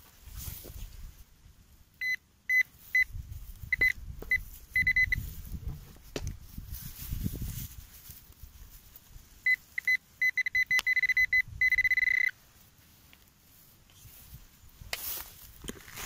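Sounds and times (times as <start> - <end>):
metal detector beeping: 2.0 - 3.1, 3.7 - 5.3, 9.4 - 12.4.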